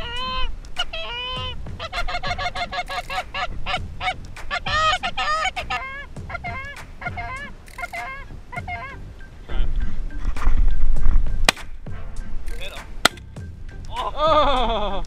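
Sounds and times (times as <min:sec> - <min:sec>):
goose call honks and clucks: 0:00.0 - 0:09.8.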